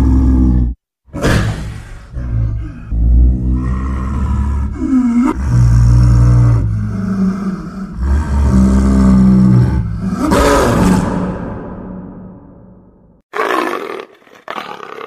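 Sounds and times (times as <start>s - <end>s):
leopard growling and roaring: 0.0s - 11.9s, 13.4s - 15.0s.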